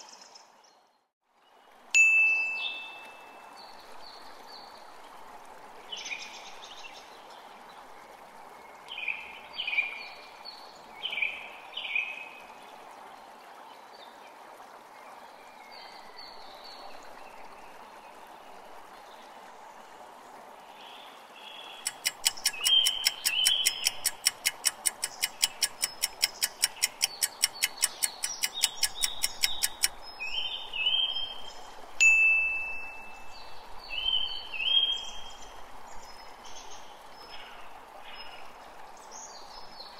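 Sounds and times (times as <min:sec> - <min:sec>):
held chime-like tone: 0:02.0 - 0:03.3, 0:32.0 - 0:33.3
soft chime notes: 0:02.0 - 0:03.4, 0:32.0 - 0:33.3
fast ticking: 0:21.9 - 0:29.9
faint steady tone: 0:32.0 - 0:33.6.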